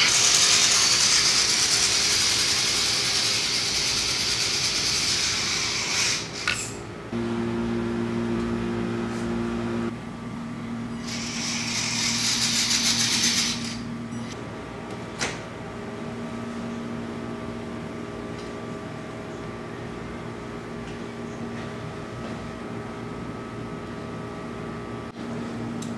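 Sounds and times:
toy car motor whirring: 11.1s - 13.8s.

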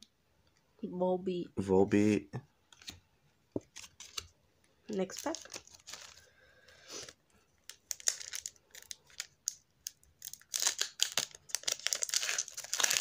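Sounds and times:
plastic wrapper tearing and crinkling: 5.0s - 6.3s, 6.9s - 13.0s.

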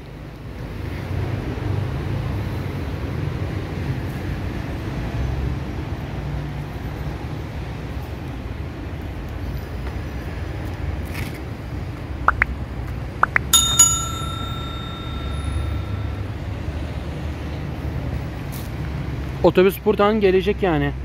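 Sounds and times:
bell ding: 13.3s - 16.7s.

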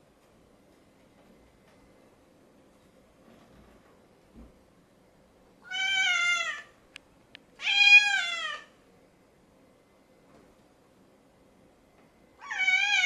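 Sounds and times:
cat meowing: 5.6s - 6.8s, 7.6s - 8.7s, 12.4s - 13.0s.

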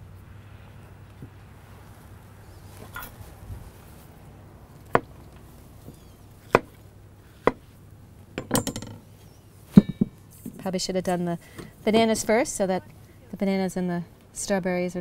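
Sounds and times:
clinks with ringing tone: 8.4s - 9.0s.

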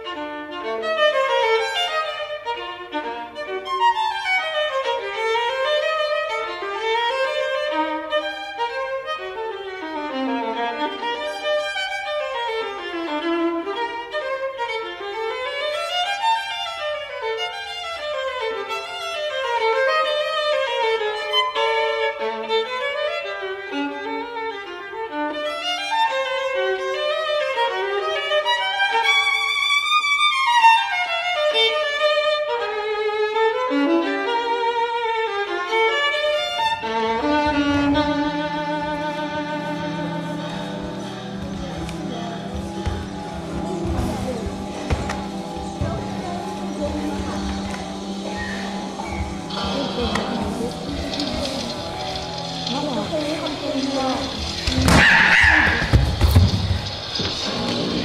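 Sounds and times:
solo violin fast runs: 0.0s - 58.0s
low sustained tones: 36.8s - 58.0s.

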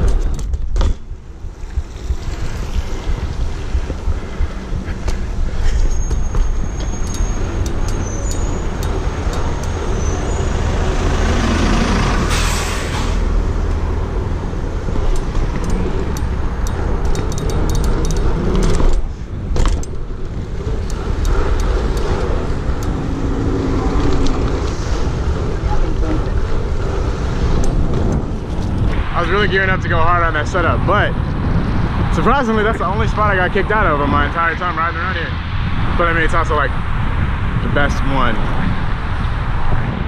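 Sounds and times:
bike clicks and rattles: 0.0s - 10.9s, 13.6s - 29.0s
passing cars: 0.0s - 40.0s
wind buffeting microphone: 0.0s - 40.0s.

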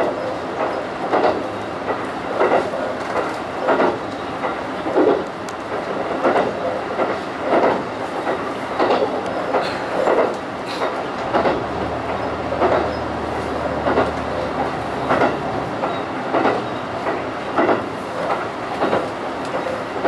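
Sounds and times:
train running rumble: 0.0s - 20.0s
train wheels clattering over rail joints: 0.0s - 20.0s.

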